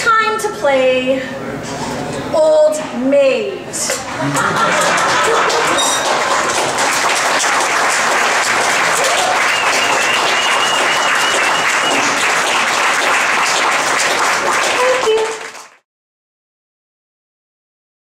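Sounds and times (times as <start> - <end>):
audience applauding: 4.2 - 15.8.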